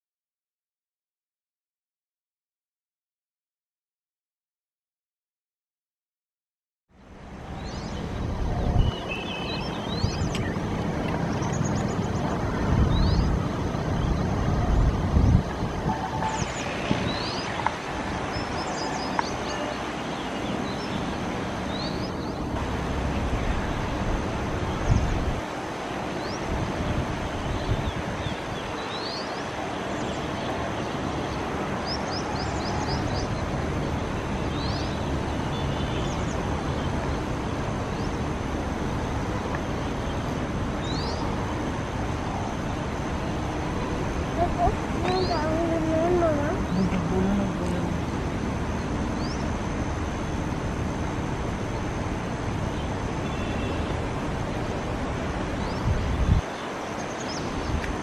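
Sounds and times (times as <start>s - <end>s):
bird chirps: 7.6s - 14.3s.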